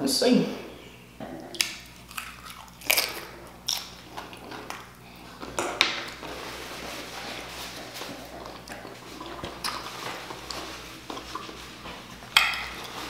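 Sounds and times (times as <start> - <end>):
tortilla chip crunching and chewing: 1.6 - 6.4.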